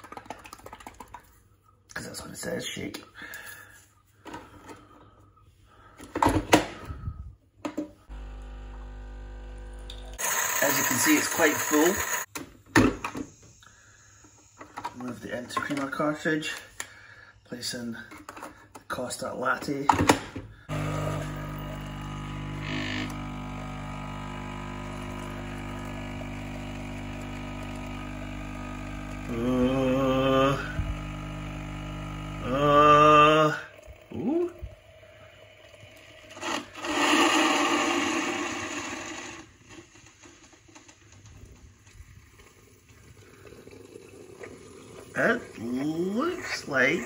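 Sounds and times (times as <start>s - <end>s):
coffee machine humming: 8.1s - 12.3s, 20.7s - 47.0s.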